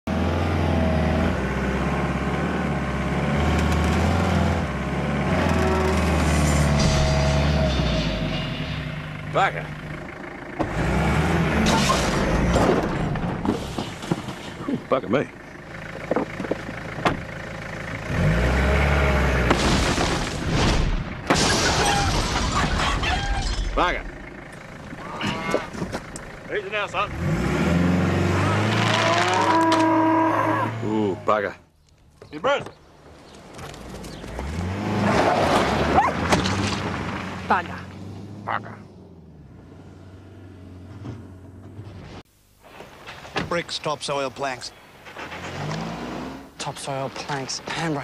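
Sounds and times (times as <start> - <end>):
loud crash: 6.3 - 9.2, 19.4 - 23.8
pickup truck engine running: 9.0 - 11.6, 14.0 - 18.3, 23.8 - 27.1
engine starting and revving: 10.6 - 13.4, 18.0 - 19.5, 26.7 - 31.0, 33.7 - 37.4, 45.0 - 46.6.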